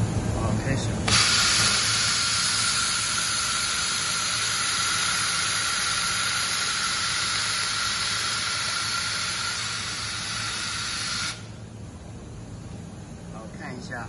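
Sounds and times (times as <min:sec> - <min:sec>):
laser welder hissing: 0:01.1 - 0:11.6.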